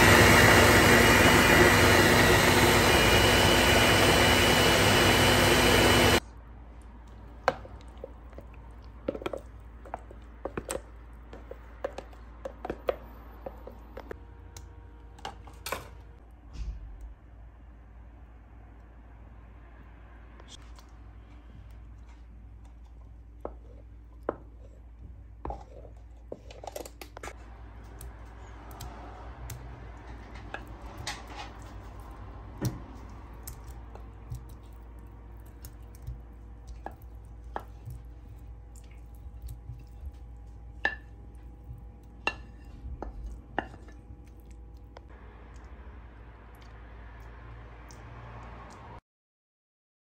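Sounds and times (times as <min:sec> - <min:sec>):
wooden spoon stirring thick sauce: 0:07.0 - 0:14.0, 0:29.5 - 0:44.7.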